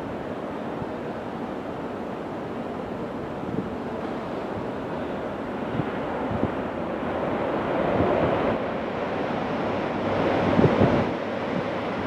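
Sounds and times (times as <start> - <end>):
wind buffeting microphone: 3.2 - 12.0.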